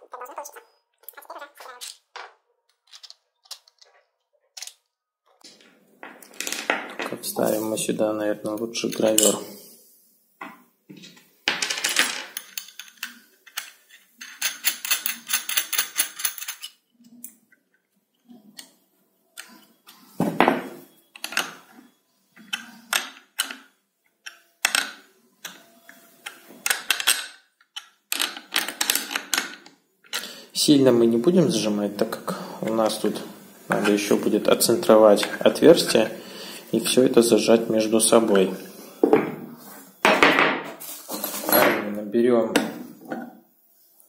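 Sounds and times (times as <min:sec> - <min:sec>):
bolts and wrench clicking on plastic: 0:22.4 - 0:30.2.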